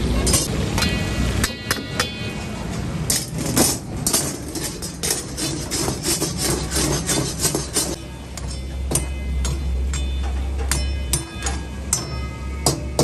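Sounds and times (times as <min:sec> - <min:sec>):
metal ladle scraping steel woks: 0:03.0 - 0:09.1.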